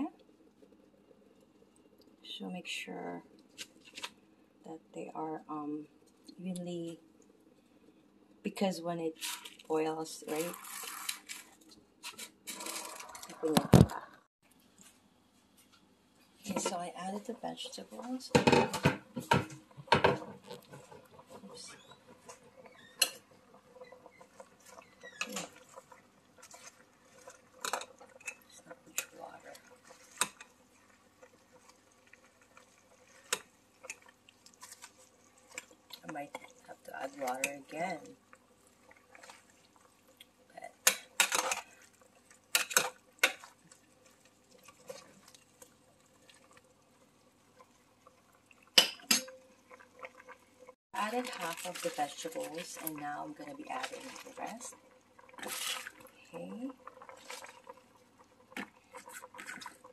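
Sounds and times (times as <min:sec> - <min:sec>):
soup simmering and bubbling: 0:00.0 - 0:02.2, 0:03.2 - 0:04.6, 0:09.2 - 0:59.9
faint ticks and squeaks: 0:21.6 - 0:25.4
cookware clinking: 0:48.8 - 0:49.4.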